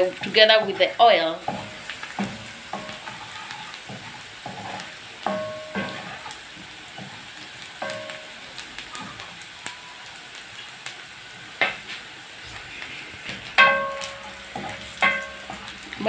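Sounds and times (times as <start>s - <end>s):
wooden spoon clanking on pan: 0.0s - 9.3s, 13.5s - 16.0s
onions sizzling in hot oil: 0.0s - 16.0s.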